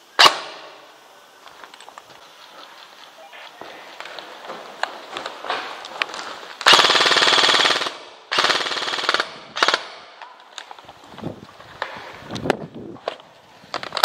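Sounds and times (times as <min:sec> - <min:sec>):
airsoft gun firing bursts: 0:06.6 - 0:10.2.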